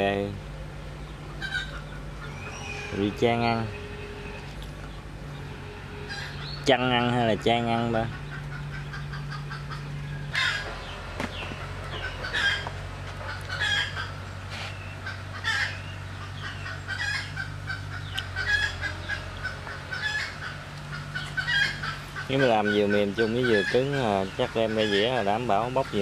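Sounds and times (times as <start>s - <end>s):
chickens clucking: 0.0s - 26.0s
steady low hum: 0.0s - 26.0s
rooster crowing: 10.3s - 10.8s.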